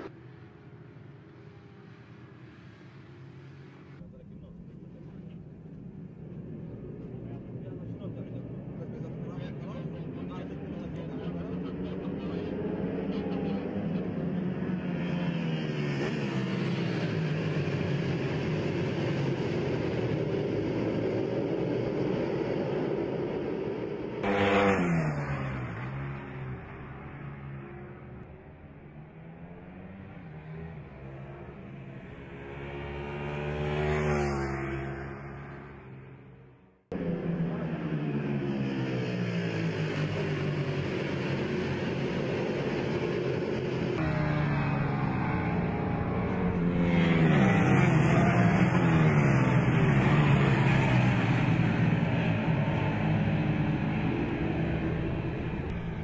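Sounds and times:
motorbike passing by: 6.5s - 56.0s
superbike engines at high revs: 37.0s - 55.8s.

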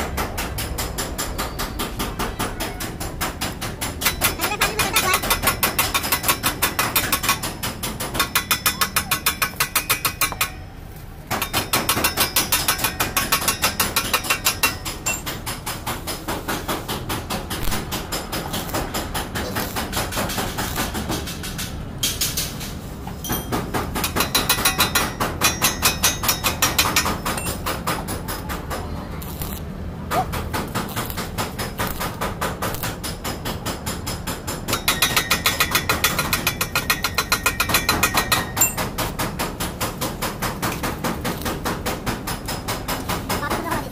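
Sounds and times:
hammer striking sheet metal: 11.3s - 22.6s, 23.3s - 28.8s.

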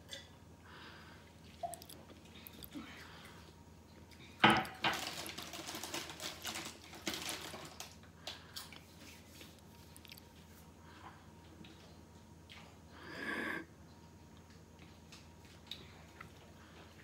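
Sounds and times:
crisp packet rustling: 4.7s - 8.0s.

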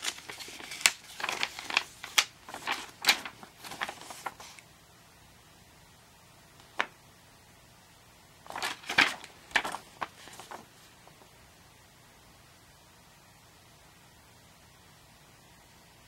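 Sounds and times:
paper crackle: 0.0s - 4.6s, 8.5s - 11.3s
paper rustling and crinkling: 0.0s - 4.6s, 8.4s - 11.3s.

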